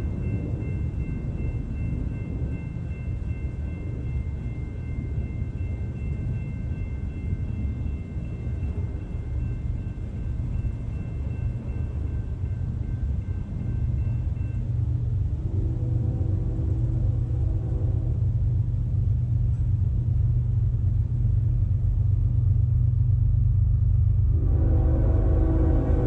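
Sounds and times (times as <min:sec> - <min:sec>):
faint high ringing tones: 0:00.0 - 0:14.9
freight train rumble: 0:00.0 - 0:26.0.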